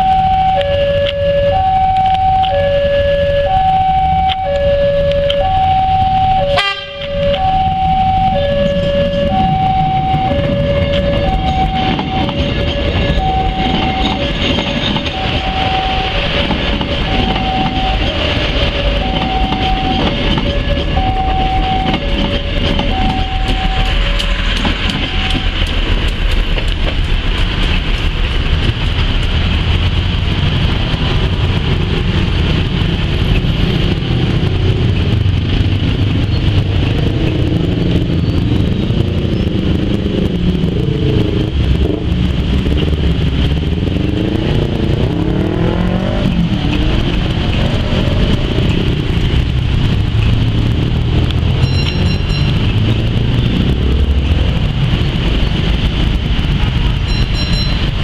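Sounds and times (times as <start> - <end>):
level-crossing alarm chimes: 0.0 - 24.4, 51.6 - 52.7, 57.0 - 58.0
diesel railcar engine revving: 0.0 - 58.0
passing train rumble: 0.0 - 58.0.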